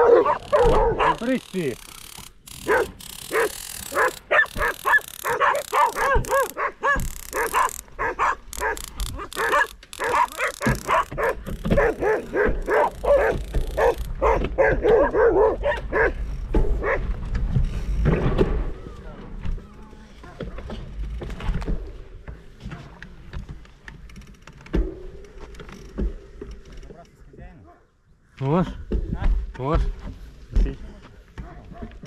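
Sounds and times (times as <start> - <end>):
dogs barking and yipping: 0.0 - 1.4, 2.5 - 17.2, 31.4 - 32.0.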